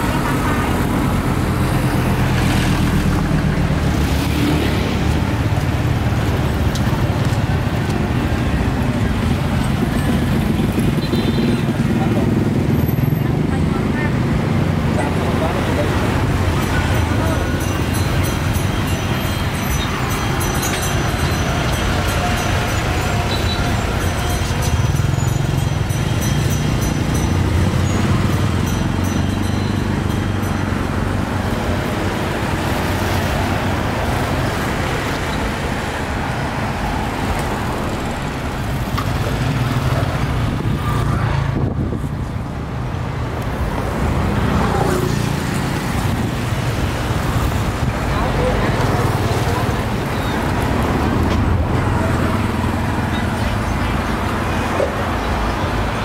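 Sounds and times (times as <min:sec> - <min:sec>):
road traffic rumble: 0:00.0 - 0:56.0.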